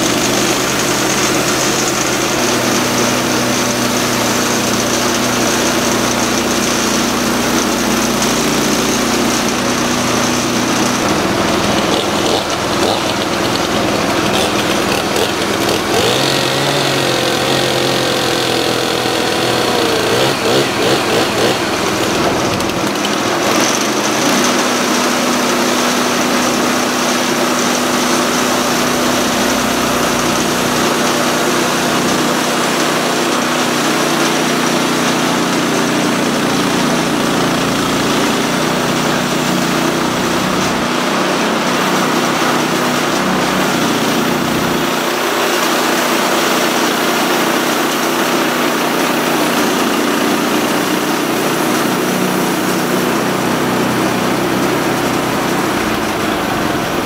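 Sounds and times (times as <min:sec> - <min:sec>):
band blade cutting log: 0:00.0 - 0:34.4
small gas engine running: 0:00.0 - 0:57.0.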